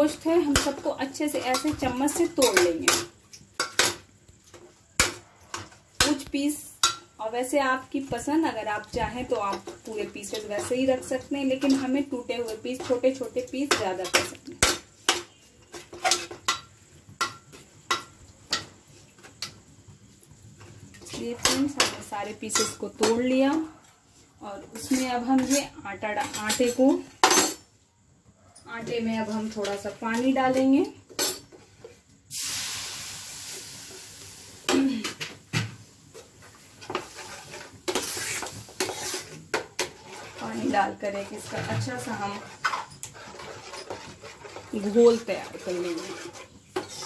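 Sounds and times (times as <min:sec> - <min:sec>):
metal spoon scraping in pot: 0:08.5 - 0:18.7, 0:24.7 - 0:27.6, 0:36.8 - 0:47.0
water sizzling in hot pan: 0:31.6 - 0:34.8, 0:35.6 - 0:47.0.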